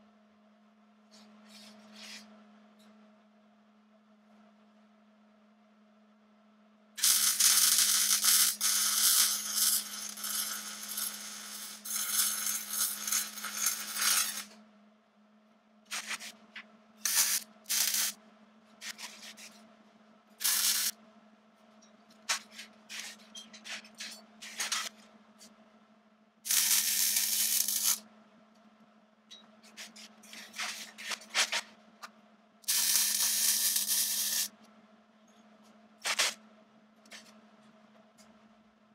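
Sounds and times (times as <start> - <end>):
electric arc welding crackle: 7.0 - 14.6, 15.9 - 16.4, 17.0 - 18.2, 20.4 - 21.0, 26.5 - 28.0, 32.6 - 34.6, 36.0 - 36.4
welding bursts and clicks: 7.0 - 14.6, 15.9 - 18.2, 20.4 - 21.0, 22.2 - 25.0, 26.5 - 28.0, 32.6 - 34.6, 36.0 - 36.4.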